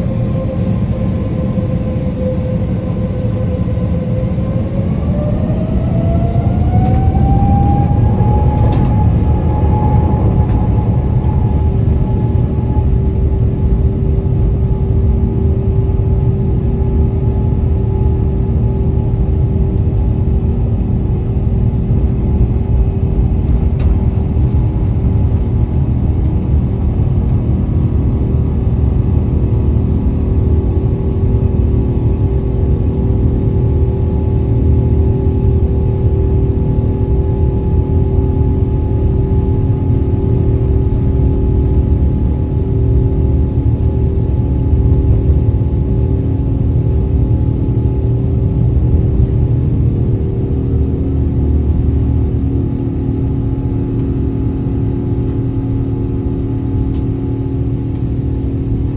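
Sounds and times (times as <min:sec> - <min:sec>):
jet engines rumbling from cabin: 0:00.0 - 0:58.9.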